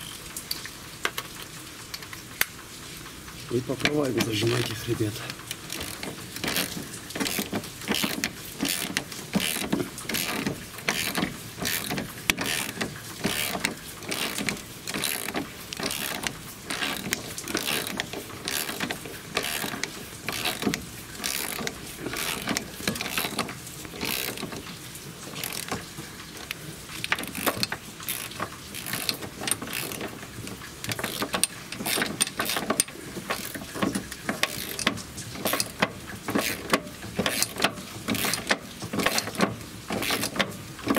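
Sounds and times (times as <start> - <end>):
ratchet wrench clicking: 5.4 - 24.6, 25.4 - 25.8, 26.4 - 30.1, 30.8 - 33.6, 34.3 - 40.4.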